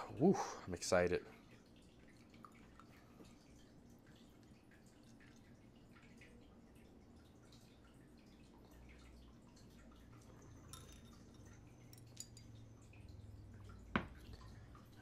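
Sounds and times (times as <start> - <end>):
beer trickling into glass: 9.0 - 15.0
glass knocking on tiled table: 13.9 - 14.2.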